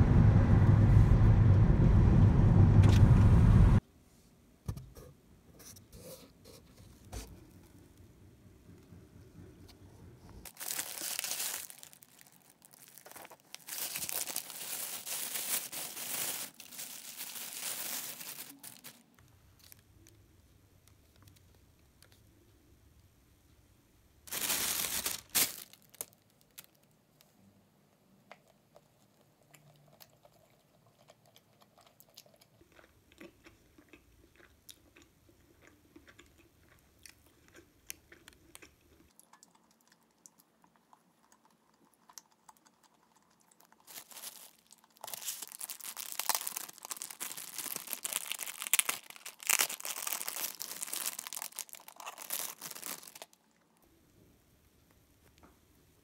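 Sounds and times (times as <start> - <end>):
plastic wrapping crinkling: 10.4 - 20.2, 24.3 - 27.0, 43.6 - 53.4
crunching and chewing: 10.4 - 22.2, 28.2 - 53.9.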